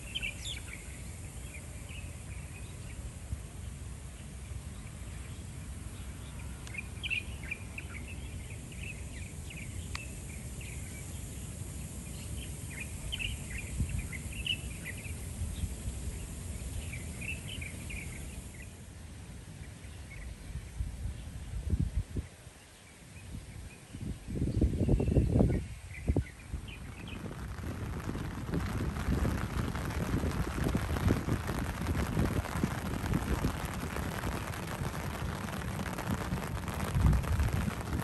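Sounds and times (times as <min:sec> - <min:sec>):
rain on pavement and grass: 0:00.0 - 0:18.6, 0:26.4 - 0:38.0
small birds chirping: 0:04.1 - 0:18.8.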